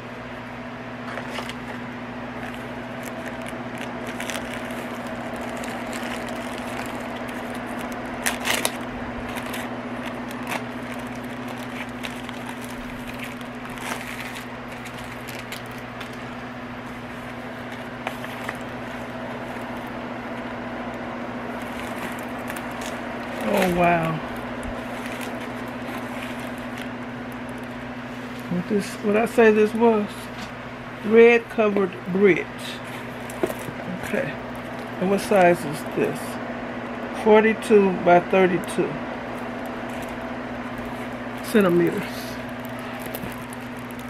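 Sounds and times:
steady low hum: 0.0 - 44.0
packaging crackling: 1.0 - 28.5, 32.7 - 35.9, 39.2 - 44.0.

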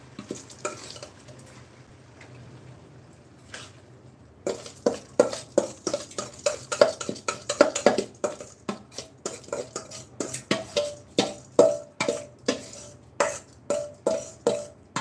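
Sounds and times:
steel bowl knocking on pan: 4.5 - 15.0.

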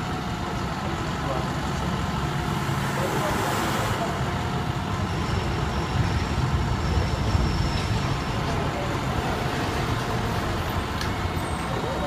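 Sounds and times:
ambulance engine idling: 0.0 - 12.0
street traffic: 0.0 - 12.0.

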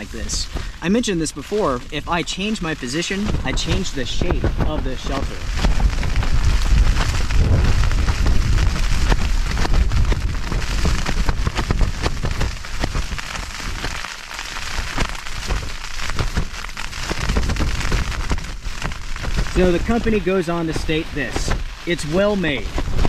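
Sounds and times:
rain tapping on fabric: 0.0 - 23.0
gusty wind rumble: 3.2 - 21.9.

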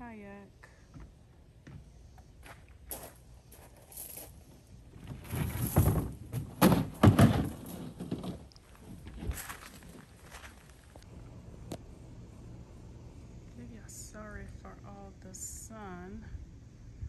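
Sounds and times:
plastic kayak thunking and scraping: 5.0 - 10.3.

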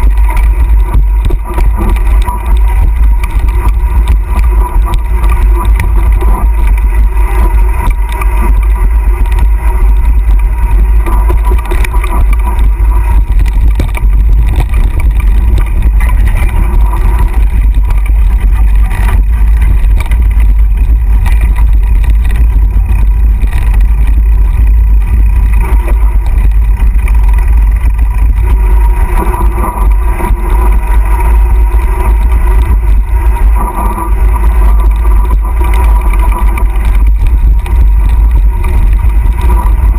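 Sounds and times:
bike tyres on dirt trail: 0.0 - 39.9
wind rumble on microphone: 0.0 - 39.9.

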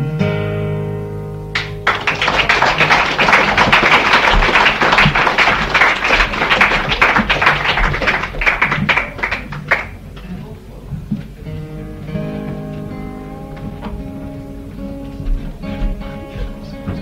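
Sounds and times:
audience applause: 1.6 - 10.1.

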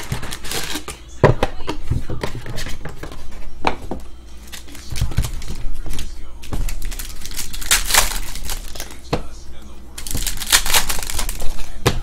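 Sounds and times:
foil wrapper ripping: 0.0 - 0.8, 4.4 - 9.0, 10.0 - 11.8
foil packs crinkling: 0.0 - 0.9, 4.4 - 9.1, 10.0 - 11.8.

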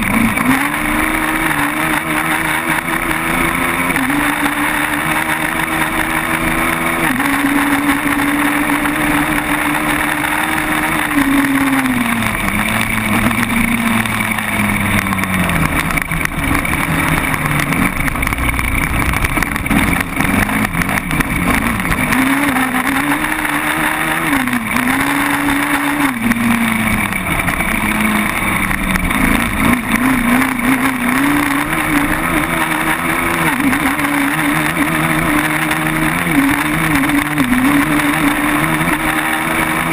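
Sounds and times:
quad bike engine revving: 0.0 - 39.9
steady noisy rush: 0.0 - 39.9.

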